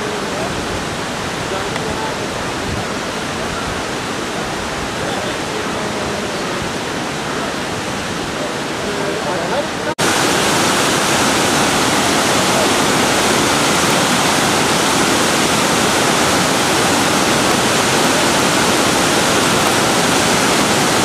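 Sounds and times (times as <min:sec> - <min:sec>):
river rushing over rocks: 0:00.0 - 0:21.0.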